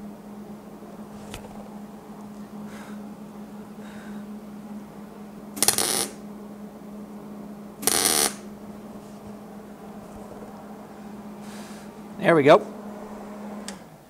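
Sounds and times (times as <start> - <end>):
low hum: 0.0 - 14.0
welder tack weld bursts: 5.6 - 6.2, 7.8 - 8.5.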